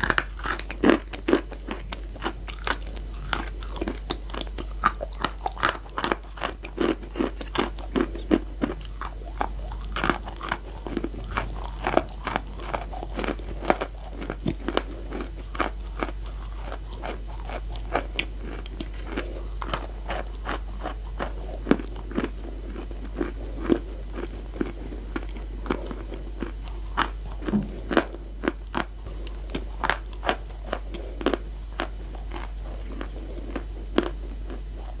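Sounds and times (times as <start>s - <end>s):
chewing hard chalk crunches: 0.0s - 34.6s.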